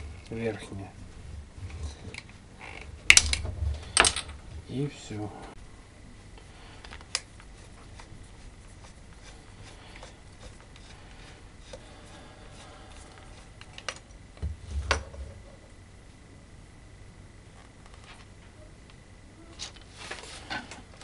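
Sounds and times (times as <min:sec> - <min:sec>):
dull thumps: 0:14.4 - 0:15.6.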